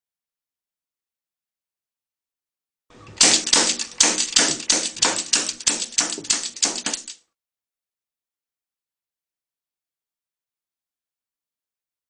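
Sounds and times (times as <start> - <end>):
sharp metallic clicking snaps: 3.2 - 7.2.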